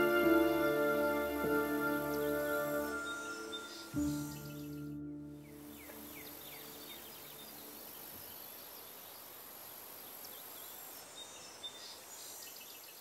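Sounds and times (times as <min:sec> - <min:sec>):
thin high hiss: 0:00.0 - 0:04.9
small birds chirping: 0:01.7 - 0:13.0.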